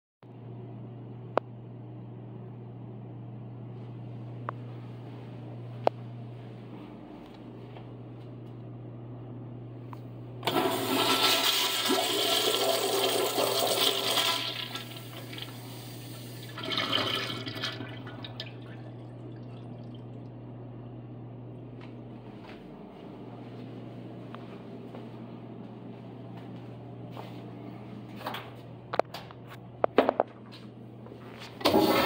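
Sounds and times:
urinal flushing: 10.4s - 20.5s, 31.6s - 32.0s.

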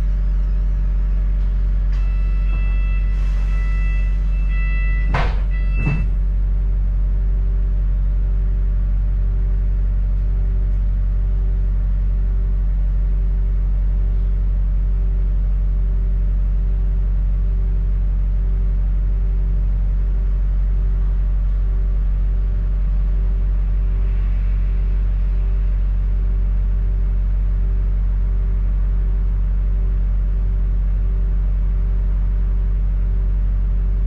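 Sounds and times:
faint pulsing tone: 0.0s - 7.0s, 21.0s - 27.8s
bus engine hum: 0.0s - 34.0s.

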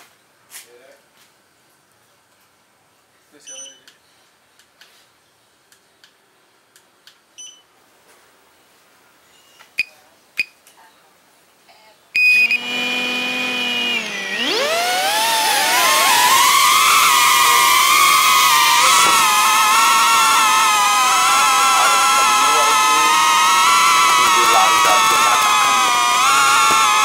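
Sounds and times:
short beeps: 3.5s - 3.9s, 7.4s - 7.6s
drone motors whining: 12.2s - 27.0s.

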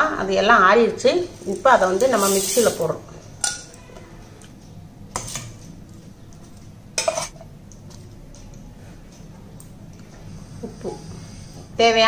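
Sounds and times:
spoon scraping metal jar: 1.3s - 2.9s.

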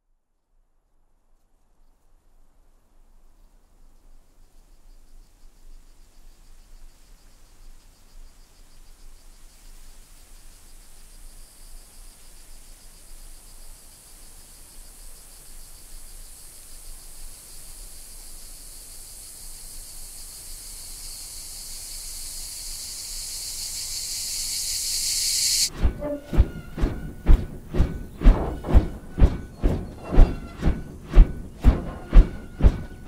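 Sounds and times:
insects trilling: 10.4s - 25.7s.

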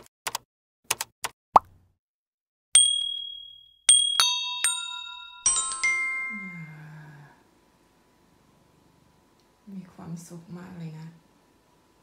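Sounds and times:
glockenspiel-like chime notes: 2.8s - 7.2s.

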